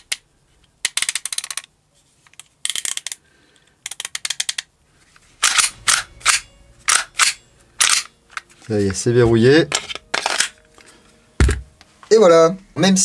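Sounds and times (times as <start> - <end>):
small plastic and metal clicks: 0.0 - 1.7, 2.3 - 4.7
pistol slide clacks: 5.4 - 8.1.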